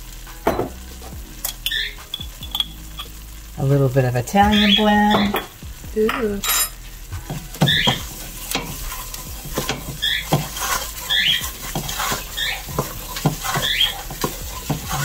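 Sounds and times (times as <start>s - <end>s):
roux sizzling: 0.0s - 15.0s
wooden spoon squeaking in pot: 1.4s - 3.1s, 6.4s - 15.0s
spoon knocking pot: 5.1s - 6.7s, 7.3s - 8.8s, 9.4s - 15.0s.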